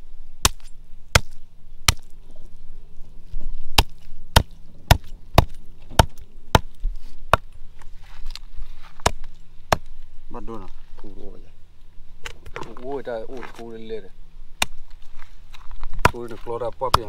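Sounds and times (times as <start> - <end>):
machete chopping on wood: 0.4 - 2.1, 3.8 - 7.5, 9.0 - 9.9, 16.0 - 17.0.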